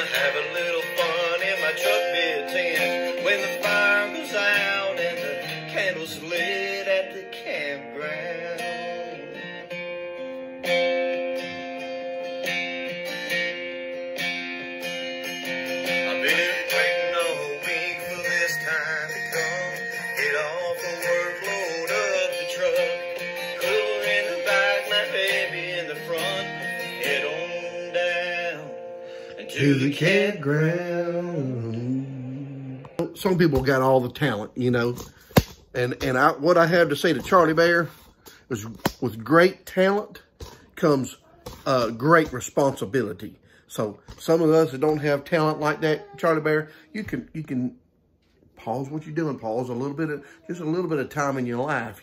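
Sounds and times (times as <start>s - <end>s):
person singing: 0.0s - 9.6s, 15.8s - 33.2s, 46.0s - 46.2s
strummed acoustic guitar: 0.0s - 43.0s.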